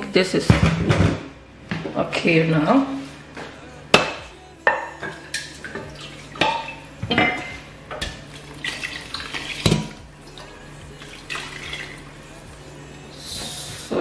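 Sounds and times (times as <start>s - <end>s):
steel bowl clinking against pot: 4.7s - 8.2s.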